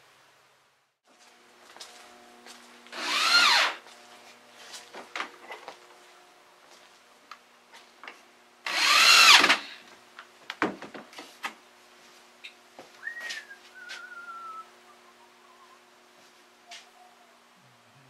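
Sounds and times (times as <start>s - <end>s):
power drill drilling into wood: 2.9s - 3.8s, 8.7s - 9.8s.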